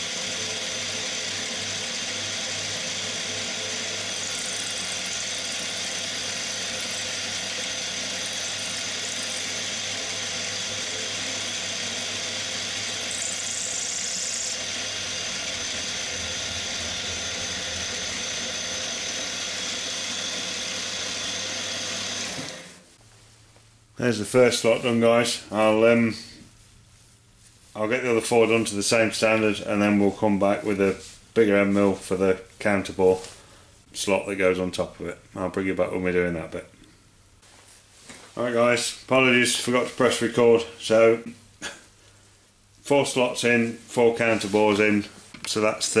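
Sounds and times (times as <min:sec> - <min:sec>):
milling machine cutting metal: 0:00.0 - 0:22.8.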